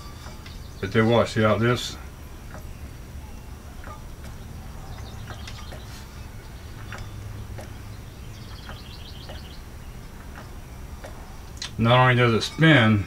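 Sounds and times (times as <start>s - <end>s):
bird trill: 0.0s - 13.0s
low steady hum: 0.0s - 13.0s
faint clicks: 2.4s - 11.8s.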